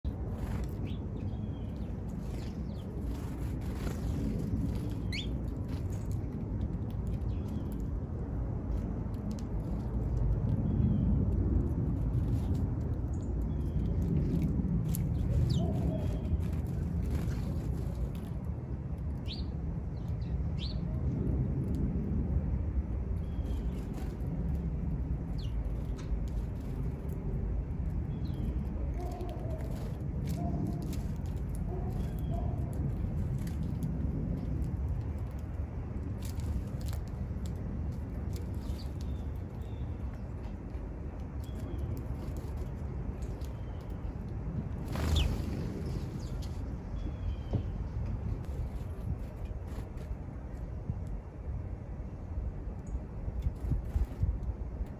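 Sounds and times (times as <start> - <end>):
small birds chirping: 0.0 - 8.0, 12.0 - 18.4, 19.2 - 21.0, 23.2 - 34.5, 36.2 - 50.0
low outdoor rumble: 0.0 - 54.9
bird chirps: 5.0 - 5.4.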